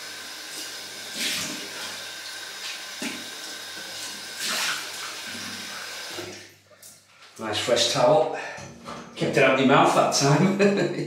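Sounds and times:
water splashes: 0:02.6 - 0:06.6.

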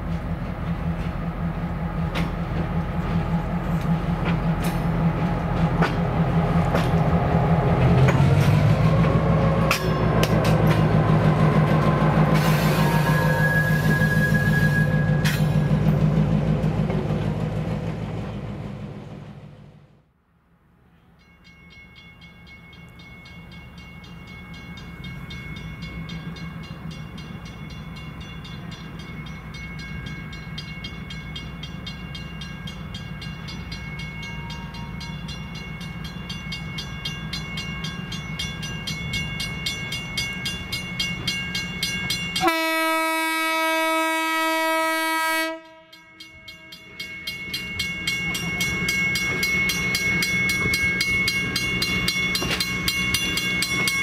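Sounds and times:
diesel railcar engine hum: 0:00.0 - 0:54.0
passing train rumble: 0:00.0 - 0:54.0
train horn blast: 0:42.4 - 0:46.7.

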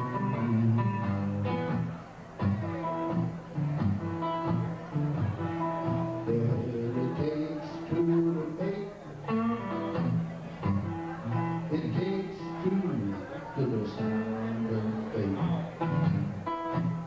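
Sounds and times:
electric guitar solo: 0:08.6 - 0:17.0.

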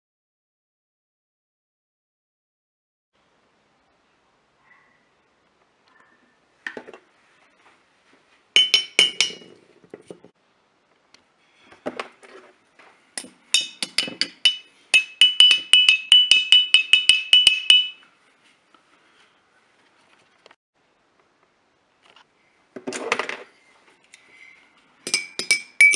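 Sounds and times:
stick tapping glass bottles: 0:08.6 - 0:09.6, 0:13.2 - 0:18.0, 0:25.0 - 0:25.9.

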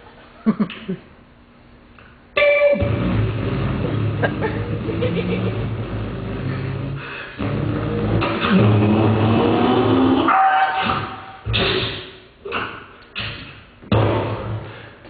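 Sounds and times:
mouth imitating car engine revving: 0:02.8 - 0:10.3.

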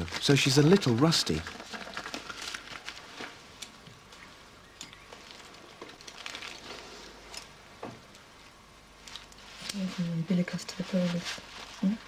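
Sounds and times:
paper drapes rustling: 0:09.0 - 0:12.0.

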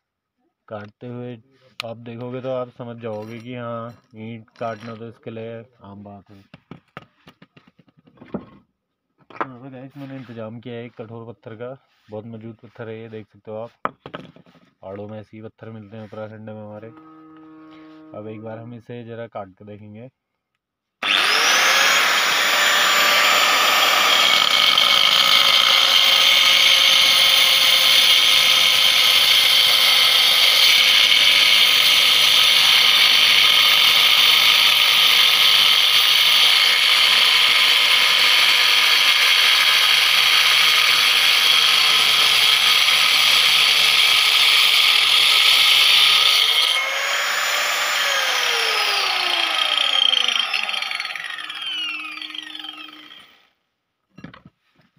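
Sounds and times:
angle grinder cutting stone: 0:21.0 - 0:53.4.

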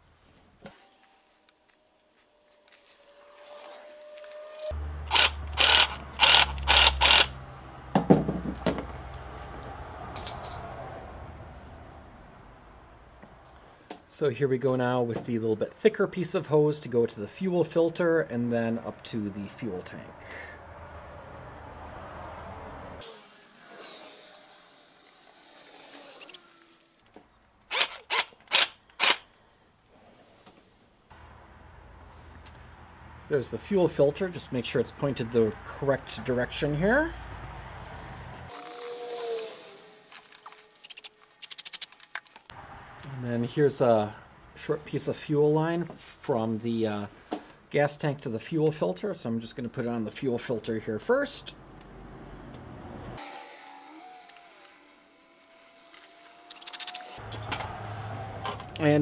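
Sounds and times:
hand tool clicking: 0:04.6 - 0:07.3, 0:40.8 - 0:42.0, 0:56.5 - 0:57.2
sharp tool strokes on hose: 0:38.5 - 0:41.9, 0:55.9 - 0:57.2.

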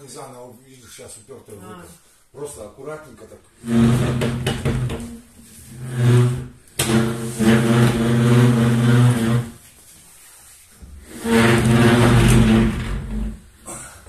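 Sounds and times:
wardrobe scraping across tiles: 0:03.6 - 0:13.5.

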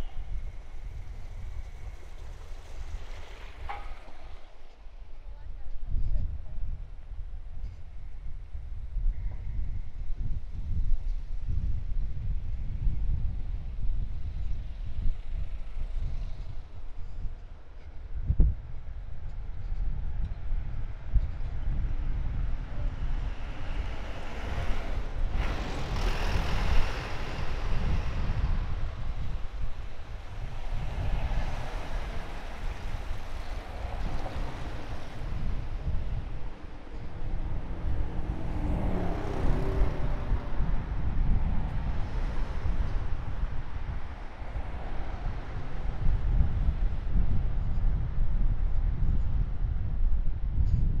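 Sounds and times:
traffic noise: 0:00.0 - 0:51.0
wind rumbling on microphone: 0:00.0 - 0:51.0
motor vehicle passing: 0:22.5 - 0:47.3.

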